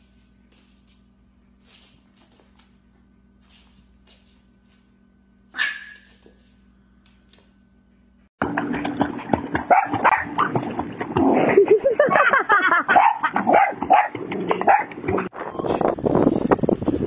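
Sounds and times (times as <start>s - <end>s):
dog barking: 5.6s - 6.2s, 9.7s - 10.4s, 12.9s - 14.9s
woman laughing: 11.5s - 13.0s.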